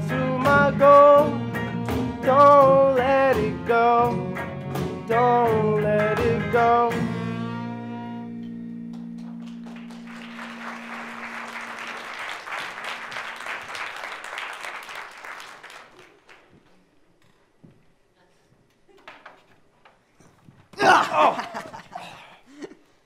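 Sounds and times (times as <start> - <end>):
audience applause: 9.0 - 16.6
live band final chord: 9.5 - 12.4.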